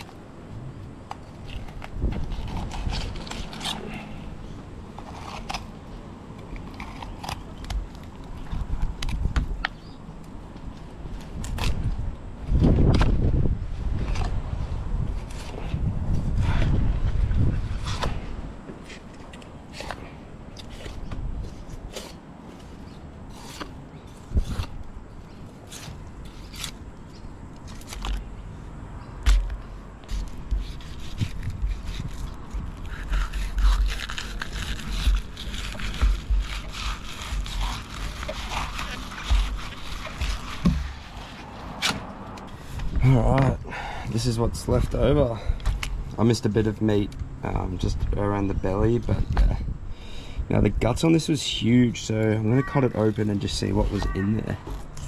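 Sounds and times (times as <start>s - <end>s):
knife cutting strokes: 25.6s - 26.8s, 29.3s - 42.9s
heavy thump: 40.2s - 41.2s.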